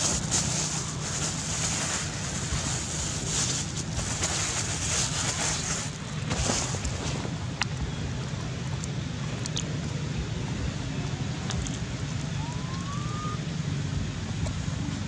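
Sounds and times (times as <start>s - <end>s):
wind rumbling on microphone: 0.0s - 15.0s
short rising chirp: 12.4s - 13.4s.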